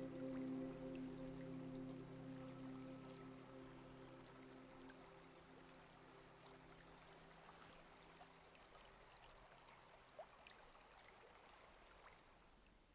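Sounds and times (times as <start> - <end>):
low background music notes: 0.0 - 8.0.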